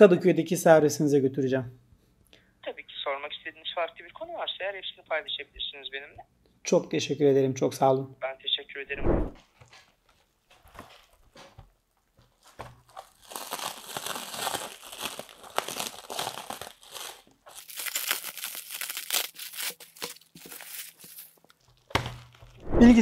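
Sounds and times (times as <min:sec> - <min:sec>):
plastic wrap crinkling and tearing: 0:12.2 - 0:22.6.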